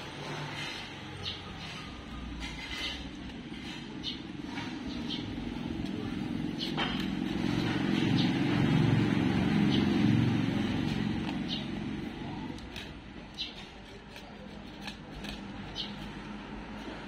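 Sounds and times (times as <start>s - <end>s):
passing vehicle engine rumble: 0.0s - 13.3s.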